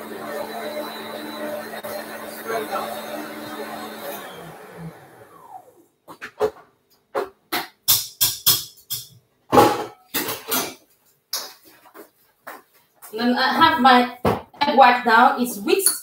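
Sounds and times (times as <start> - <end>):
electric mixer winding down: 0.0 - 5.9.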